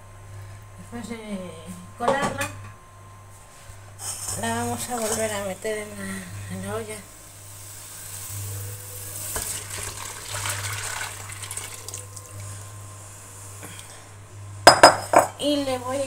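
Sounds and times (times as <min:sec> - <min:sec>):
broth splashing into pot: 0:07.4 - 0:12.7.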